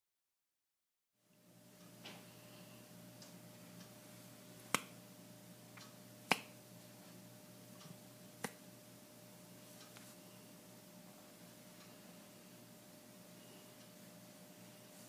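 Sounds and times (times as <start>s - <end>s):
faint steady hum: 1.2s - 15.0s
finger snaps: 4.7s - 5.0s, 5.8s - 6.6s, 8.4s - 8.6s.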